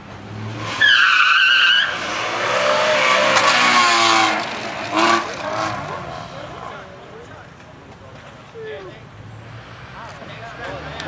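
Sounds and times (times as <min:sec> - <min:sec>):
car tyres squealing on asphalt: 0:00.3 - 0:06.3.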